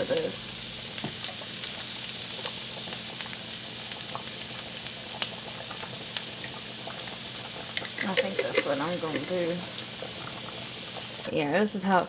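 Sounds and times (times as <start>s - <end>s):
sauce sizzling in a frying pan: 0.0s - 12.0s
spatula clicking in a pan: 7.8s - 9.4s.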